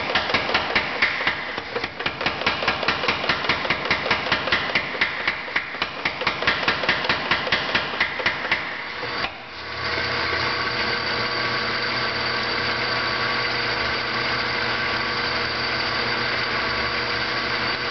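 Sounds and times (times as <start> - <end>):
power hammer striking metal: 0.0 - 9.4.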